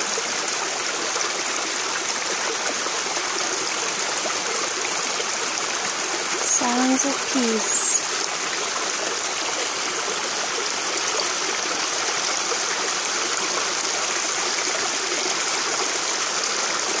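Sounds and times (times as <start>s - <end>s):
creek running over stones: 0.0s - 17.0s.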